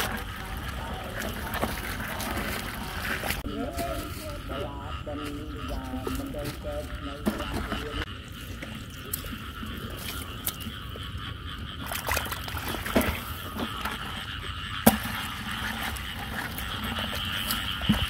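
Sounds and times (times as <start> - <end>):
knocks and splashes in water: 0.0 - 3.5, 11.7 - 18.0
frogs calling: 0.0 - 18.0.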